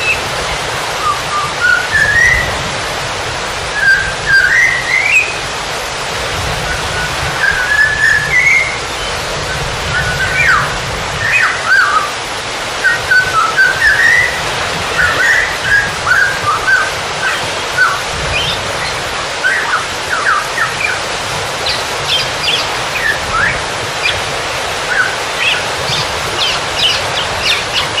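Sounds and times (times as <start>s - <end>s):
songbirds chirping and whistling: 0.0s - 0.3s, 1.0s - 2.6s, 3.7s - 5.5s, 6.6s - 28.0s
rushing water: 0.0s - 28.0s.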